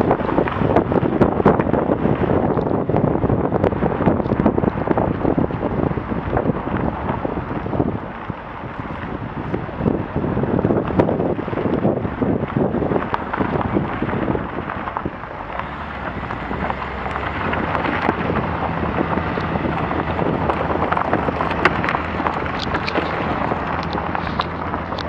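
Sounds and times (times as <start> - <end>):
low engine hum: 0.0 - 25.0
tyres crunching on dirt: 0.0 - 25.0
wind buffeting microphone: 0.0 - 25.0
grit and stones clicking: 10.8 - 25.0.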